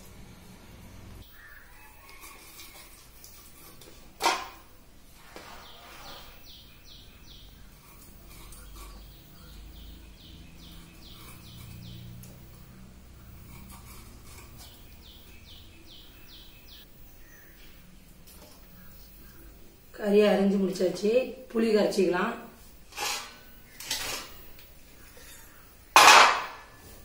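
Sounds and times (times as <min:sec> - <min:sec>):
low background hum: 0:00.0 - 0:05.2
bird chirping: 0:01.2 - 0:02.3, 0:05.6 - 0:18.1.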